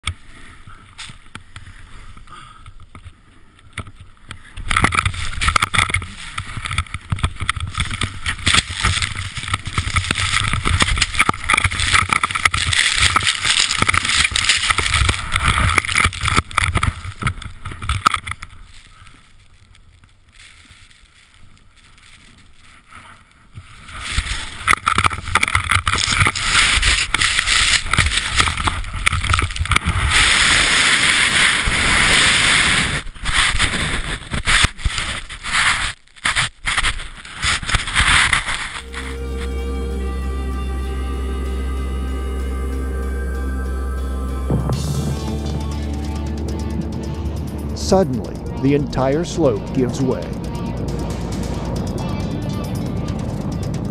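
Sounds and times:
skis sliding through snow: 5.1s - 17.8s, 18.4s - 40.0s.

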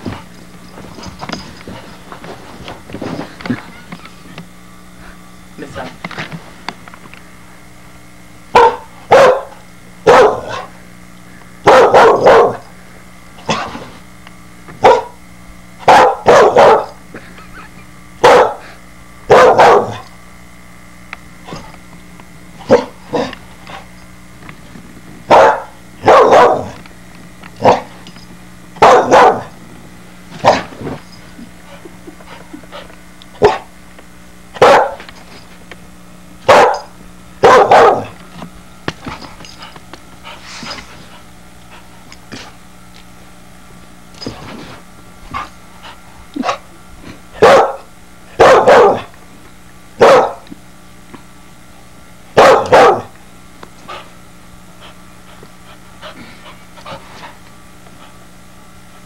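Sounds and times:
dog barking: 8.5s - 10.7s, 11.6s - 12.6s, 14.8s - 15.2s, 15.8s - 17.0s, 18.2s - 18.7s, 19.3s - 20.0s, 22.7s - 23.3s, 25.3s - 26.8s, 27.6s - 27.9s, 28.8s - 29.5s, 30.4s - 30.7s, 33.4s - 33.7s, 34.6s - 35.0s, 36.5s - 38.2s, 47.4s - 49.1s, 50.0s - 50.4s, 52.4s - 53.1s.

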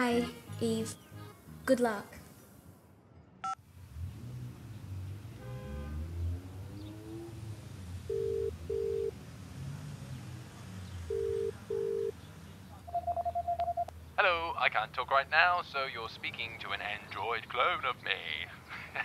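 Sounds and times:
telephone ringback tone: 8.1s - 9.1s, 11.1s - 12.1s, 12.9s - 13.9s.

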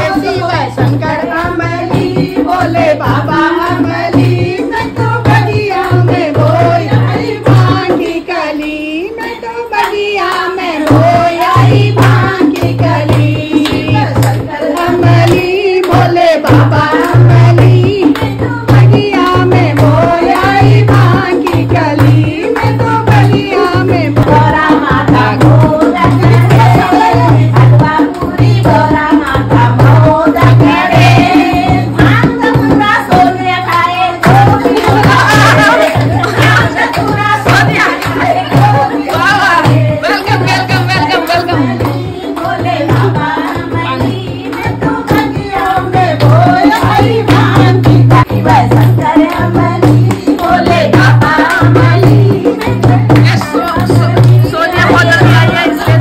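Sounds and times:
hand drum beating: 0.0s - 56.0s
women singing: 0.0s - 56.0s.

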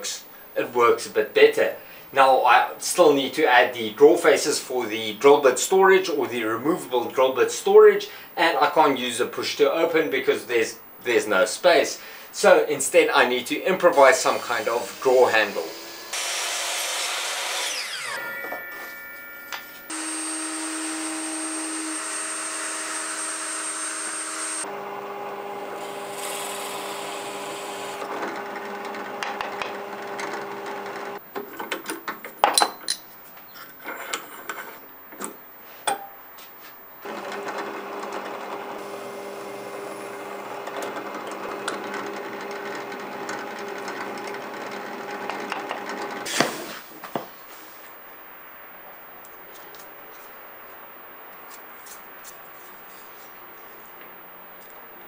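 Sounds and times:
miter saw spinning down: 14.9s - 24.7s
drill bits boring into wood: 19.9s - 24.6s, 25.8s - 31.2s
drill press motor running: 19.9s - 31.2s, 37.0s - 46.3s
knocks and clicks handling wood: 31.3s - 33.0s.

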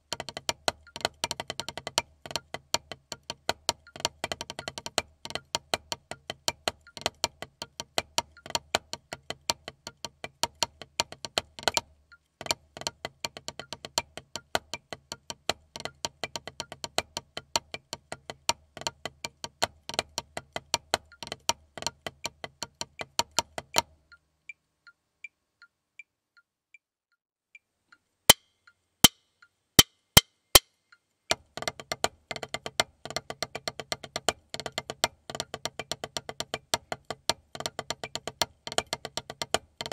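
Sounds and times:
sharp count-in clicks: 0.0s - 26.1s
faint ticking: 0.0s - 26.8s
drumsticks on practice pad: 28.3s - 31.0s.

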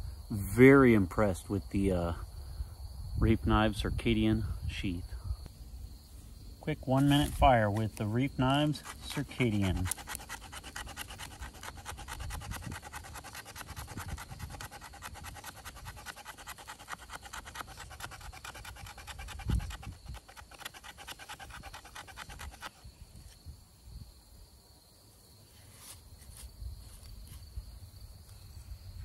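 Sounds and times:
knife scraping: 6.9s - 22.8s.

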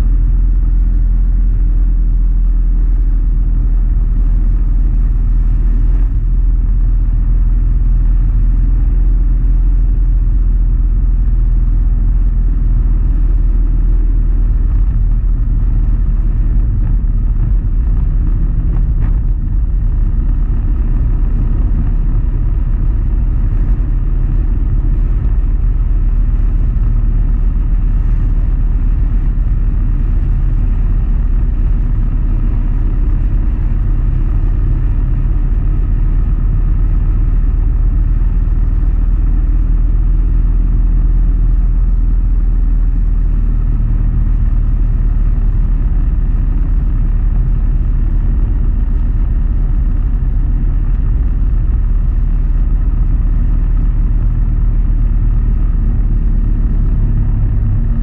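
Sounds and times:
motorcycle engine droning: 0.0s - 42.1s.

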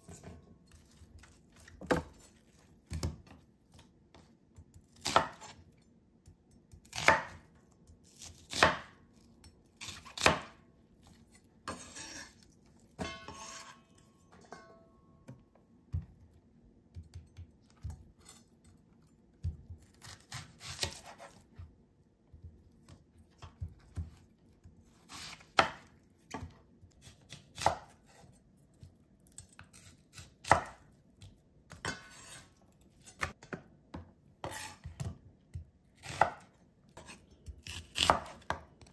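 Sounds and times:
knife slicing onions: 0.0s - 5.7s, 6.7s - 13.9s, 19.4s - 21.7s, 22.4s - 28.4s, 29.3s - 33.5s, 34.4s - 38.9s.

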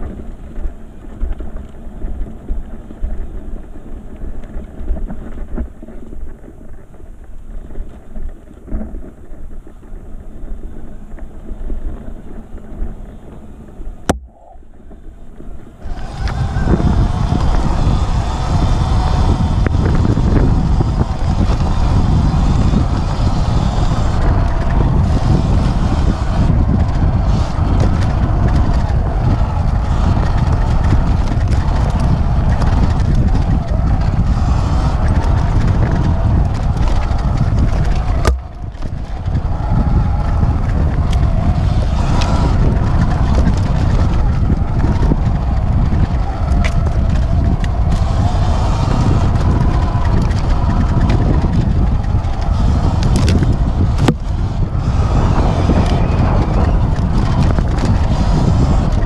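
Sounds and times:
electric dirt bike riding on trail: 0.0s - 59.0s
wind buffeting microphone: 0.0s - 59.0s.

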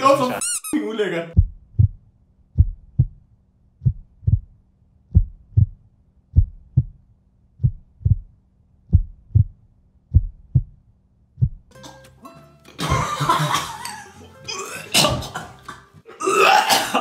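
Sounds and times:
heartbeat thumps: 1.4s - 7.0s, 7.6s - 10.8s, 11.4s - 11.7s.

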